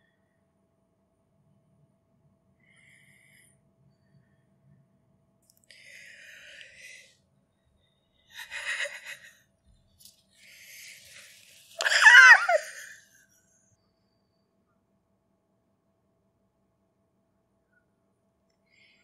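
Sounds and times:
woman laughing: 8.4 - 9.4, 11.8 - 13.0.

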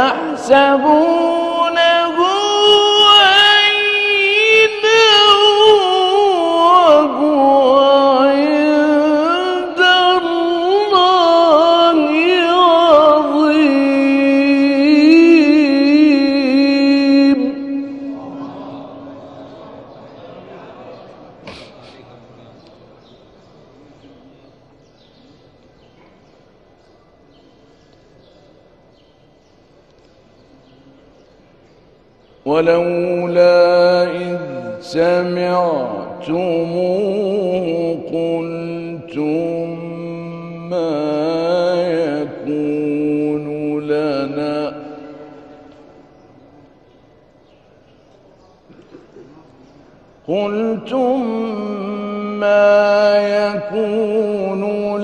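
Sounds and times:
audience room noise: 17.8 - 33.1
small birds chirping: 21.9 - 32.6, 45.4 - 48.8.

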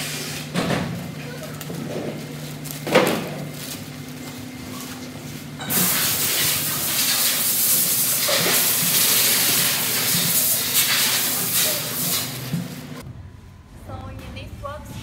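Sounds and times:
plastic wrapping crinkling: 1.3 - 5.0.

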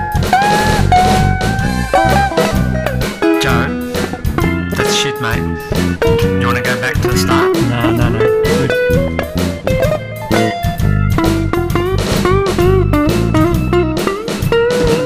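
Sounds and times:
band with bass and drums: 0.0 - 15.0
electric guitar solo: 0.0 - 15.0.

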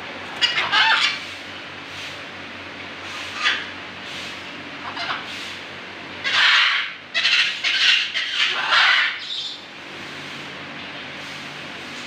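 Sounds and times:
parrots squawking: 0.4 - 1.2, 3.3 - 3.7, 4.8 - 5.3, 6.2 - 9.6.

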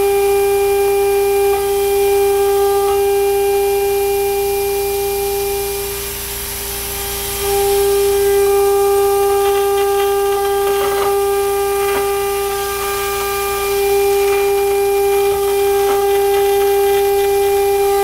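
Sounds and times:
router spindle high whine: 0.0 - 18.0
air blast hissing: 5.3 - 18.0.

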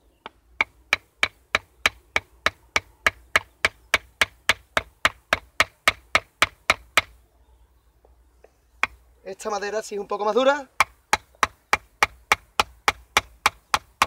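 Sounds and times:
sharp wooden knocks: 0.2 - 7.2, 8.8 - 9.0, 10.8 - 14.0.

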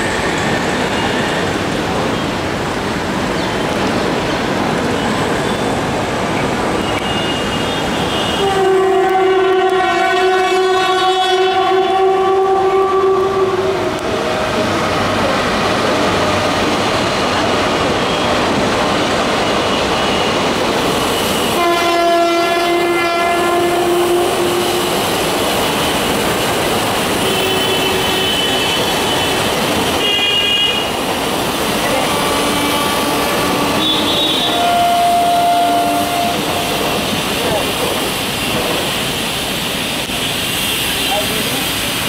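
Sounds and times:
train coaches running on track: 0.0 - 42.0
locomotive horn blasts: 6.9 - 14.1, 21.2 - 25.1, 27.2 - 31.0, 31.9 - 36.7.

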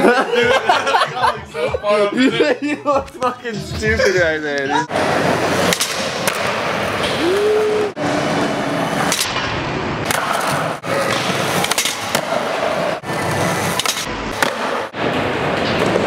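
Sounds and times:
skateboard wheels rolling on concrete: 4.9 - 16.0.

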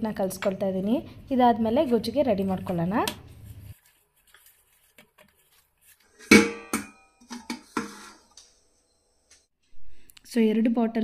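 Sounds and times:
metal kitchen vessels clanking: 6.2 - 8.4.

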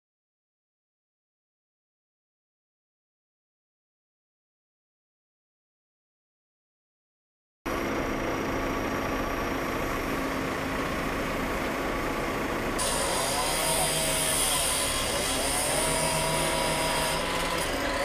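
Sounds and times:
machinery humming: 7.7 - 18.0
wavering whine: 12.8 - 18.0.

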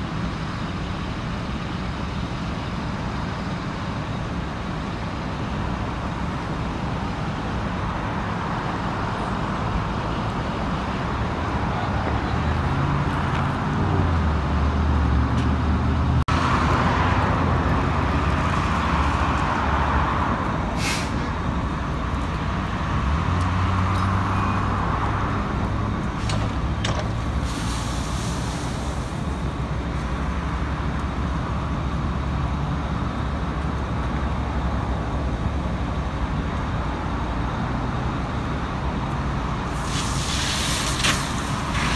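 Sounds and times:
fire hose stream hissing: 20.7 - 21.4, 27.2 - 29.6, 39.6 - 41.9
short air hisses: 20.8 - 21.3, 27.4 - 29.2, 39.7 - 41.9.

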